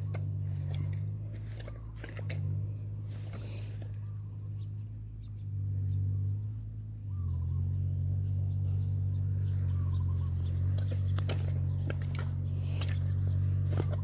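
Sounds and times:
bird chirps: 0.0s - 14.0s.

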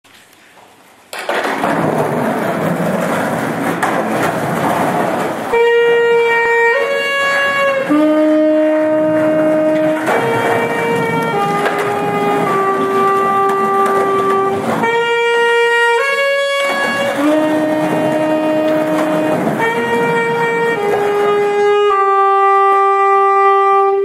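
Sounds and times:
skateboard wheels rolling on concrete: 0.1s - 24.0s
saxophone long notes: 5.4s - 24.0s.

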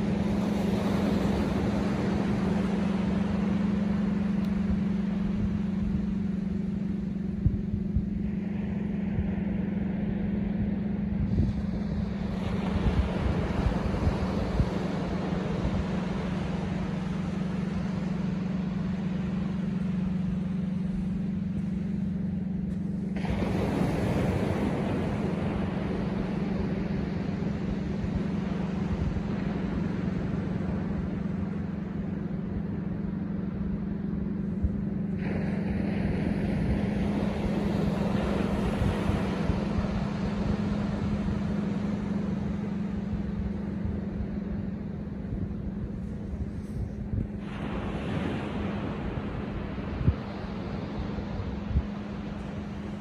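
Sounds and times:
steady low hum: 0.0s - 53.0s
surf breaking on beach: 45.8s - 53.0s.

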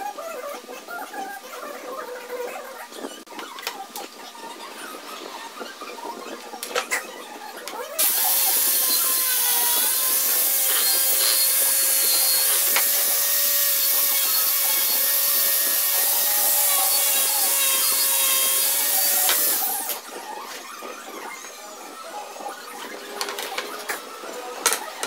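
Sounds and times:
angle grinder abrading wood panel: 8.0s - 21.6s.

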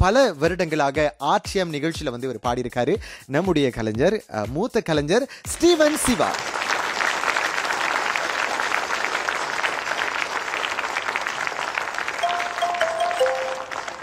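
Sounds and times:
crowd applauding: 5.6s - 14.0s.

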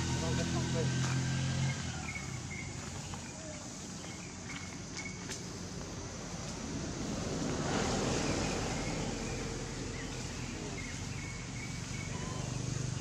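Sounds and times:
hiss: 6.3s - 13.0s.

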